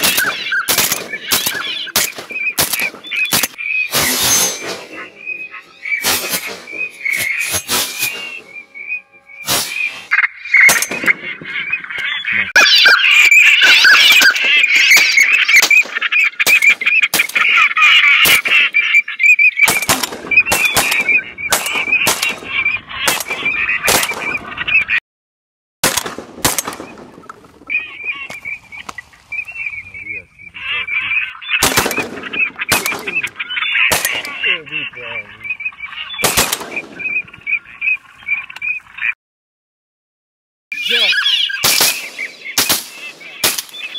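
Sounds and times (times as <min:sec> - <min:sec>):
shotgun shots: 0:00.0 - 0:05.3, 0:06.0 - 0:08.6, 0:09.4 - 0:10.0, 0:10.6 - 0:11.4, 0:19.6 - 0:24.4, 0:25.8 - 0:27.2, 0:31.6 - 0:34.6, 0:36.2 - 0:37.2, 0:41.6 - 0:43.9
ducks quacking and calling: 0:00.0 - 0:25.0, 0:26.4 - 0:39.2, 0:40.8 - 0:43.9.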